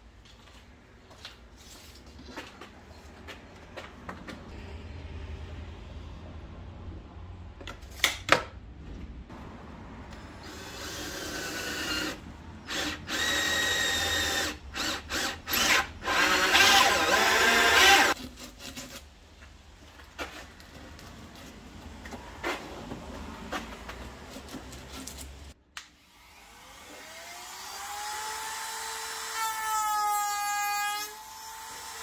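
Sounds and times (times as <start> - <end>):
cordless drill whining: 10.4 - 18.2.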